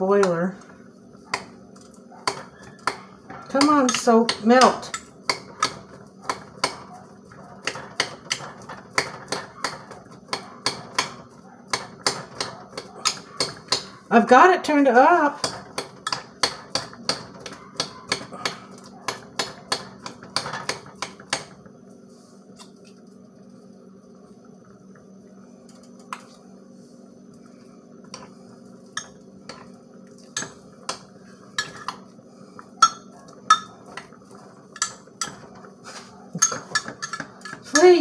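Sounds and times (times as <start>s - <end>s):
steady low hum: 0.0s - 38.0s
metal spoon clinking against glass: 36.4s - 37.6s.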